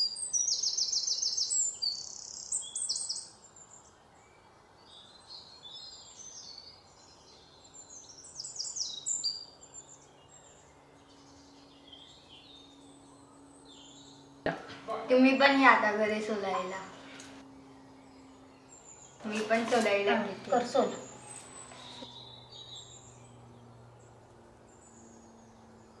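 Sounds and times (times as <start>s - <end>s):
birds chirping: 0.0s - 26.0s
faint steady hum: 0.0s - 26.0s.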